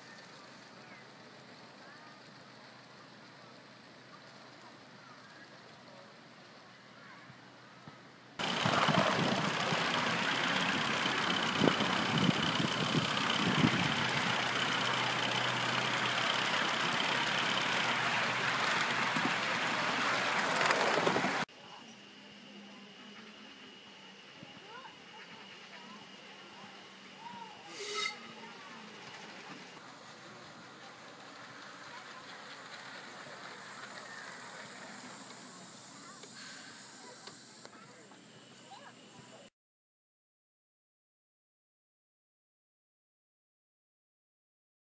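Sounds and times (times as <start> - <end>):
steam locomotive hissing: 8.4 - 21.5, 23.0 - 39.4.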